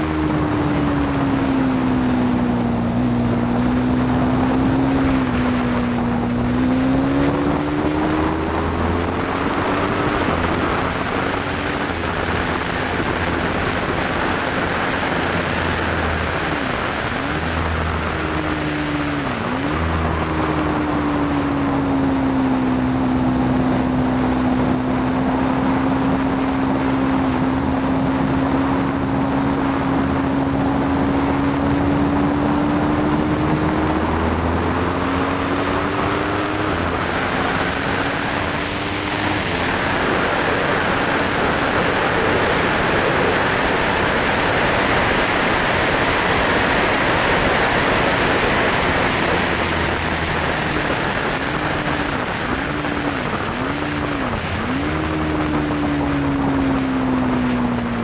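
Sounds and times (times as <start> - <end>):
motorcycle engine pulling hard: 0.0 - 58.0
wind rush on microphone: 0.0 - 58.0.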